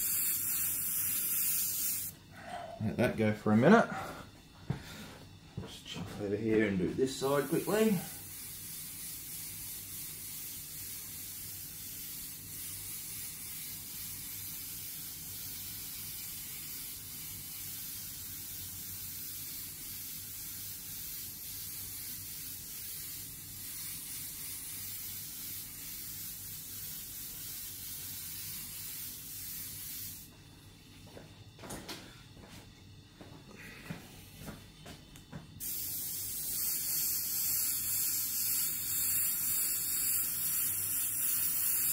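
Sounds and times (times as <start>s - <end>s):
airbrush hissing: 0.0s - 2.2s, 7.0s - 30.3s, 35.6s - 41.9s.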